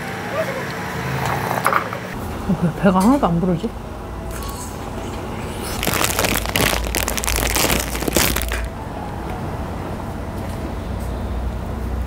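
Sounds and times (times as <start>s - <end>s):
plastic wrapper crinkling and tearing: 5.7s - 8.7s.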